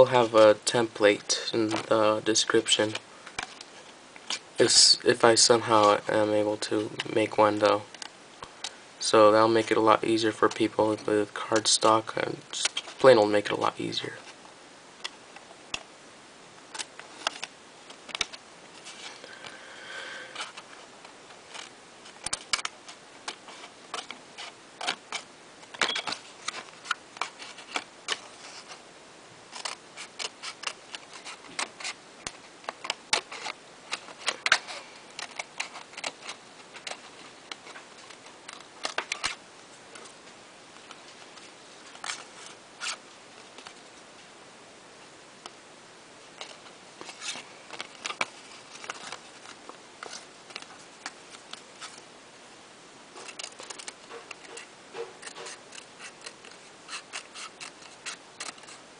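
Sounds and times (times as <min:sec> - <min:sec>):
scissors cutting cardstock: 0:53.2 - 0:58.8.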